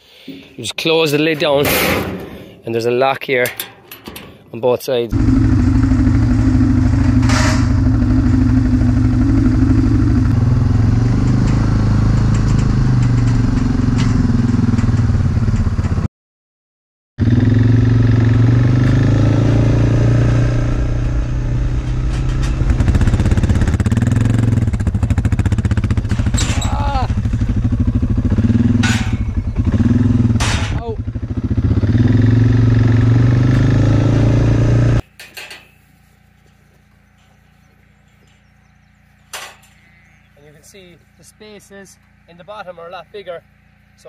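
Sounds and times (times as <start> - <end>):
quad bike engine running: 5.1 - 16.1, 17.2 - 35.1.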